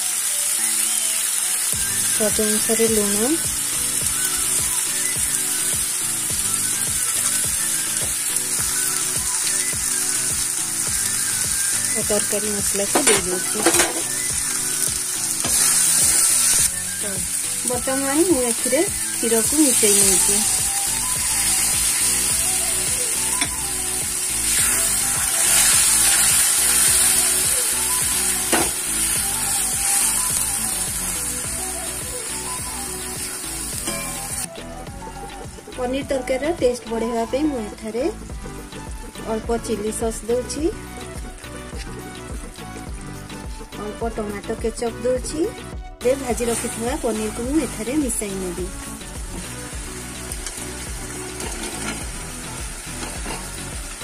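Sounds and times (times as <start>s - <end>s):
vegetables sizzling in hot oil: 0.0s - 34.6s, 35.5s - 54.0s
background music with steady beat: 0.0s - 54.0s
spatula stirring and scraping: 51.3s - 52.1s.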